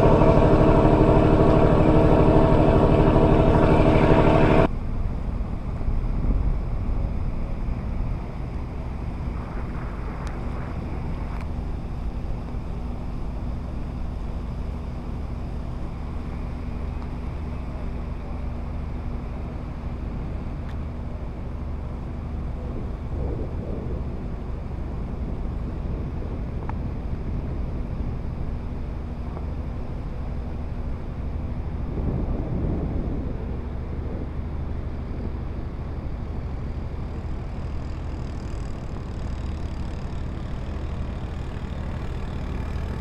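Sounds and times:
wind on microphone: 0.0s - 12.8s, 19.4s - 40.0s
boat engine humming: 0.0s - 43.0s.

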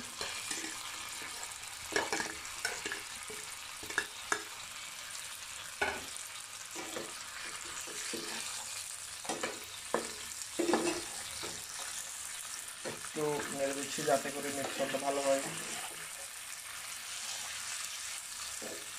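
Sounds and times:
metal spatula scraping pan: 0.0s - 3.2s, 6.7s - 8.6s, 9.3s - 12.0s
chicken sizzling in frying pan: 0.0s - 18.9s.

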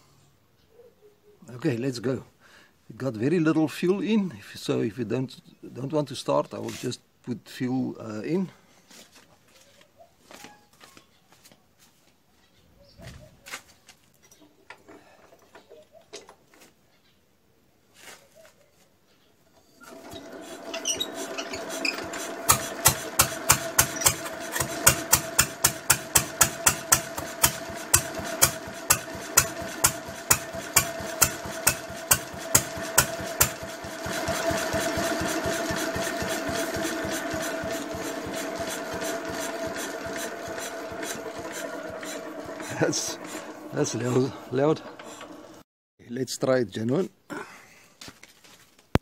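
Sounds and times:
stationary engine running: 19.8s - 45.6s
sharp exhaust pops: 22.1s - 43.5s.

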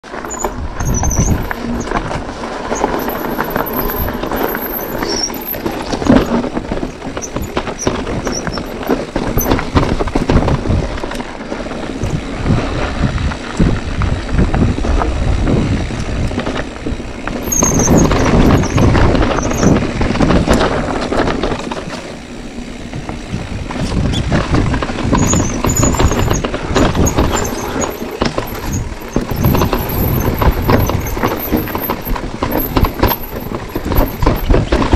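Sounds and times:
bike rattling over stones: 0.0s - 34.9s
tyres crunching on gravel: 0.1s - 34.9s
brake squeals: 0.2s - 2.0s, 2.7s - 9.6s, 17.3s - 19.9s, 25.0s - 34.8s
low rumble on microphone: 11.7s - 34.9s.

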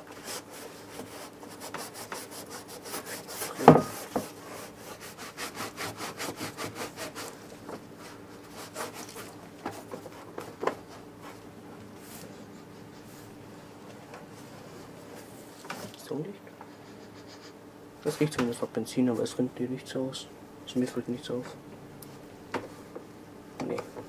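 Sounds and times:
rhythmic hand scrubbing: 0.2s - 7.3s.

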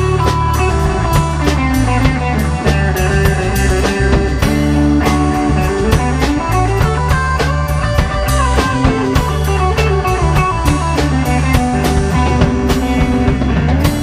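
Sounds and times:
bass guitar: 0.0s - 14.0s
drum kit: 0.0s - 14.0s
electric guitar: 0.0s - 14.0s
keyboards: 0.0s - 14.0s.

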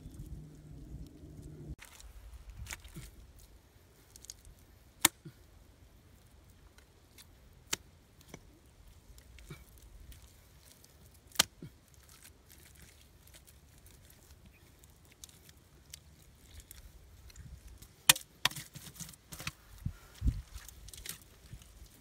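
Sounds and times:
hands digging wet mud: 1.8s - 5.4s, 6.7s - 22.0s
wet mud slaps: 11.3s - 11.7s.

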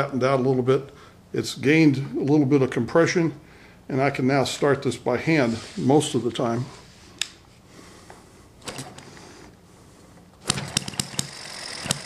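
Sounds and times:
model engine popping: 10.4s - 12.0s.

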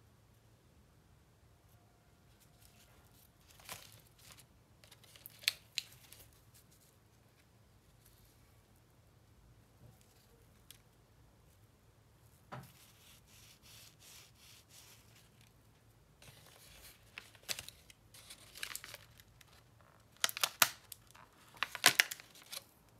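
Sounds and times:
plastic tray crinkling and clicking: 17.2s - 22.7s.

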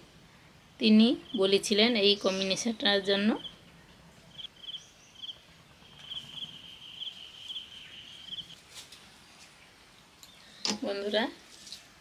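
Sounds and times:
insect chirping trill: 1.1s - 2.5s, 4.3s - 8.6s.

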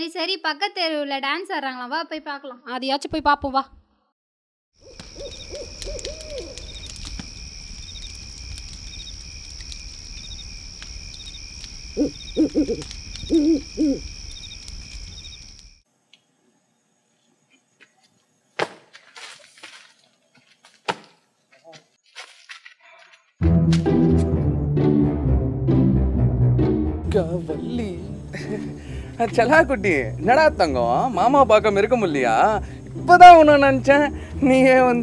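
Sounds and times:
owl hooting: 4.8s - 6.8s, 11.9s - 14.6s
insects chirping: 4.8s - 23.4s, 27.1s - 35.0s.

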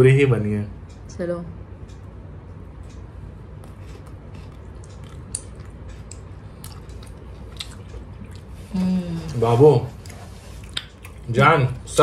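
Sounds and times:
steady low hum: 0.0s - 12.0s
wet chewing and mouth clicks: 3.6s - 12.0s.

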